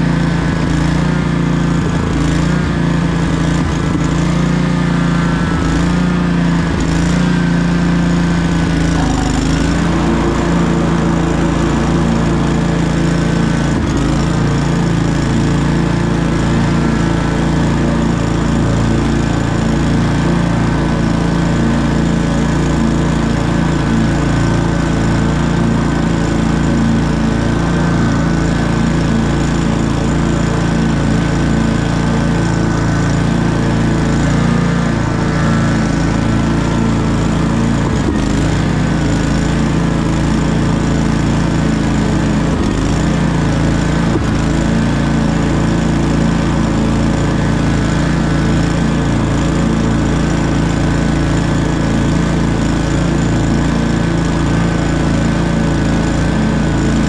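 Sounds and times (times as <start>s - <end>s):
lawn mower engine running: 0.0s - 57.0s.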